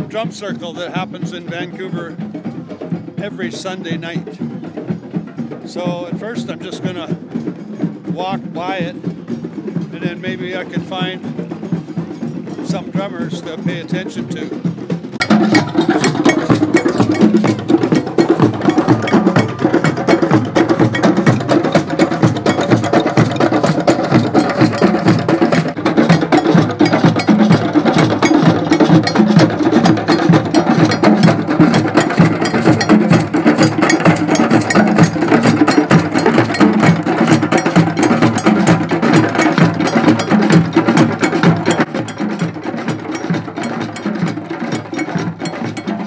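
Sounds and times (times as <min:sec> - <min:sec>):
group of hand drums playing: 0:00.0 - 0:46.0.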